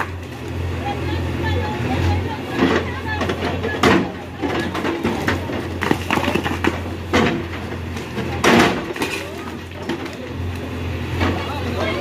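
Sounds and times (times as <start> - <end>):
diesel engine running: 0.0 - 12.0
concrete and brick crunching: 2.8 - 10.7.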